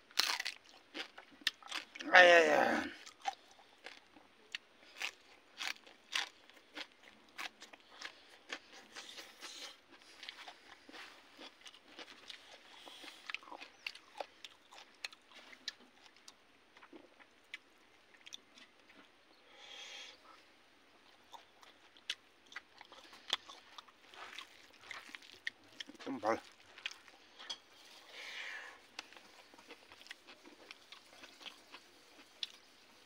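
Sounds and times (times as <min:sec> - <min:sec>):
person chewing and crunching food: 0:00.0 - 0:33.0
mouth sounds: 0:02.0 - 0:03.0.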